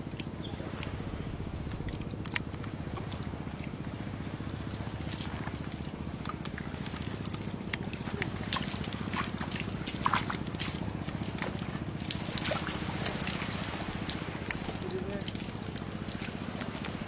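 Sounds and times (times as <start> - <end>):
steady low hum: 0.0 - 17.0
bare feet walking on mud: 6.2 - 17.0.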